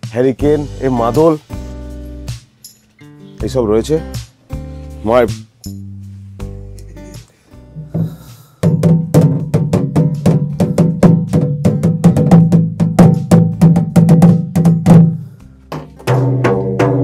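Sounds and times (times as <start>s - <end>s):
hand drum rhythm: 5.1s - 5.9s, 6.8s - 17.0s.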